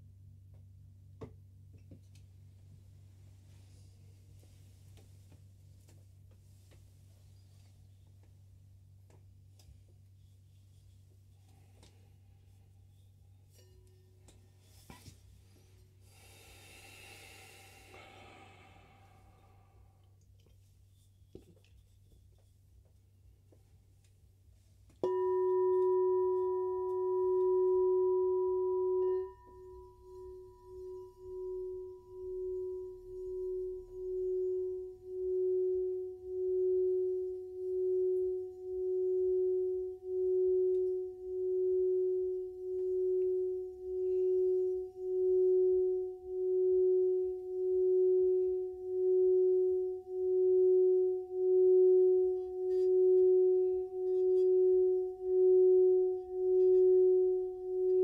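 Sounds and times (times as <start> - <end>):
singing bowl ringing: 25.0 - 58.0
striker rubbing bowl rim: 25.0 - 58.0.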